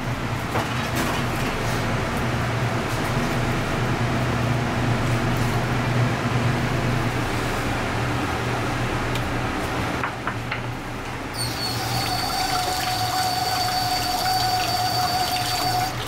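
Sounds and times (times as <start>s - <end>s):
tap water running into sink: 11.4s - 16.0s.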